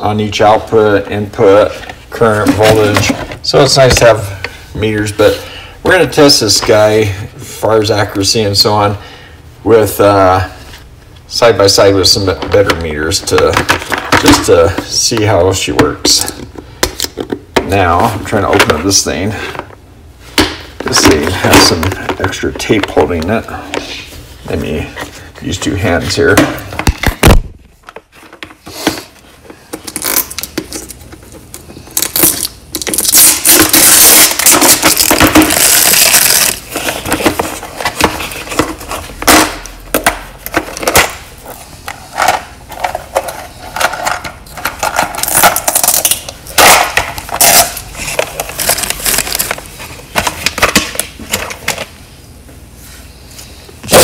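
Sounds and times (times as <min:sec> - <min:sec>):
tape being pulled off: 0:29.8 - 0:36.8.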